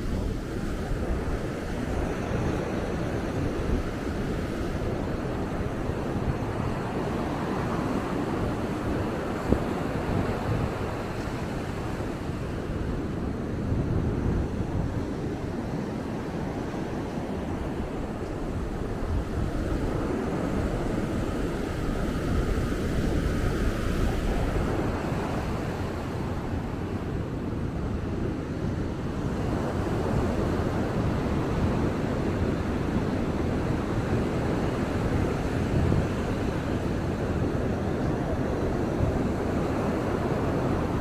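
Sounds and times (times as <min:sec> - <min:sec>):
ocean surf breaking on beach: 0:00.0 - 0:41.0
wind rumbling on microphone: 0:00.0 - 0:41.0.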